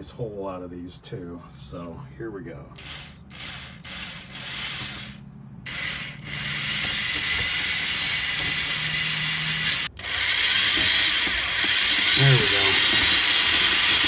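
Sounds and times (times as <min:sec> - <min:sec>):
electric drill boring into wall: 0:02.8 - 0:14.0.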